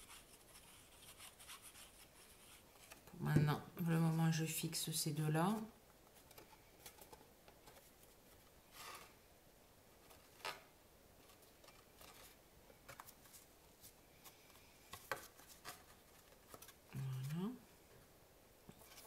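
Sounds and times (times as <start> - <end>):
cardboard rustling and tapping: 14.9 - 16.8.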